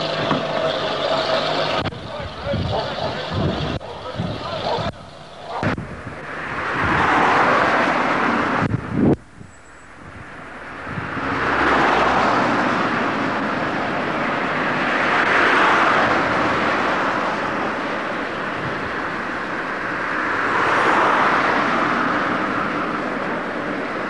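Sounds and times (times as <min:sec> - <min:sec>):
slow road traffic: 0:00.0 - 0:24.0.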